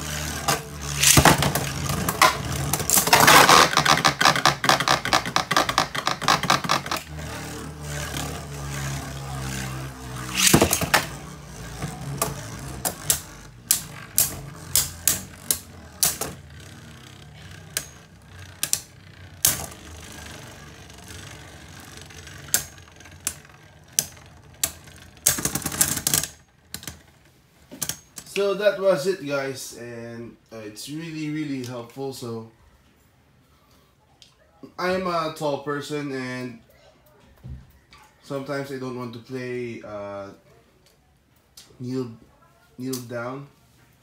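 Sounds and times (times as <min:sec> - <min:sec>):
spinning tops whirring and clashing: 0:00.0 - 0:03.9, 0:06.9 - 0:26.4.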